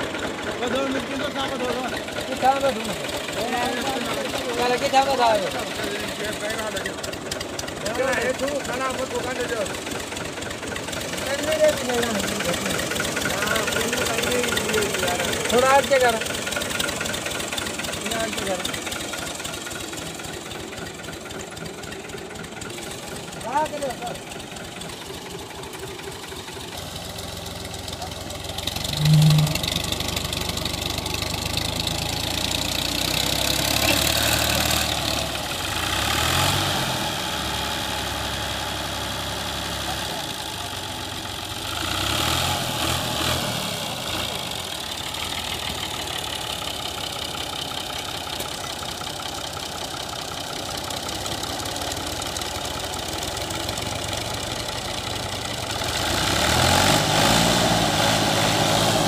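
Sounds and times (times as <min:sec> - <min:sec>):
tractor diesel engine idling: 0:00.0 - 0:59.0
men's voices: 0:00.5 - 0:07.1, 0:11.0 - 0:16.3
loud low tone: 0:28.8 - 0:30.3.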